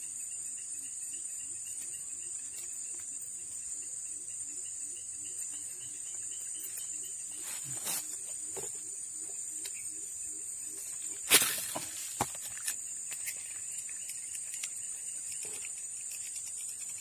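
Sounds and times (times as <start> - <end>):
insects chirping chorus: 0.0 - 17.0.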